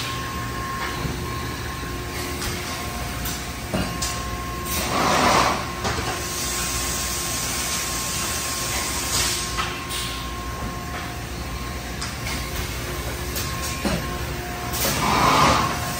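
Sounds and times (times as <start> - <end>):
industrial machinery humming: 0.0 - 15.9.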